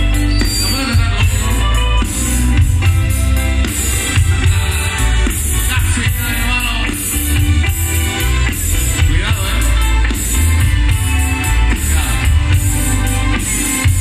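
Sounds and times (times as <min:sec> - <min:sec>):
drum kit: 0:00.0 - 0:14.0
guitars: 0:00.0 - 0:14.0
heavy bass: 0:00.0 - 0:14.0
live band playing: 0:00.0 - 0:14.0
person singing: 0:00.2 - 0:02.2.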